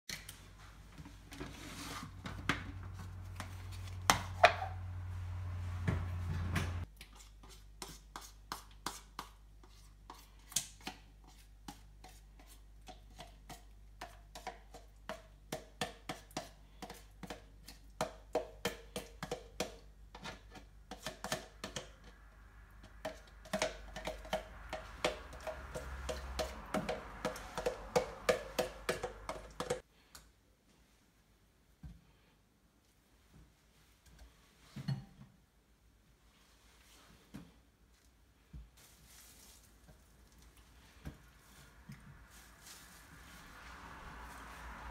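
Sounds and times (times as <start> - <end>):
low hum: 4.6 - 6.8.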